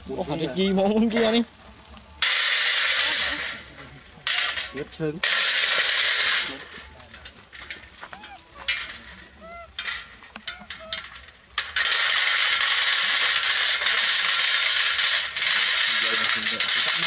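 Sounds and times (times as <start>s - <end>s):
loud steady high hiss: 0.0s - 17.0s
clicks and rattles on metal tray: 1.0s - 17.0s
monkey squeaky calls: 8.1s - 8.7s, 9.3s - 9.8s, 10.4s - 11.1s.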